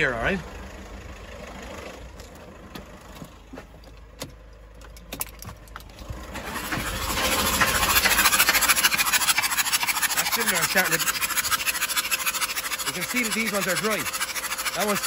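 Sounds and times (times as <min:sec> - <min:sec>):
diesel engine cranking on starter: 0:00.0 - 0:15.0
fast hissing pulse: 0:06.4 - 0:15.0.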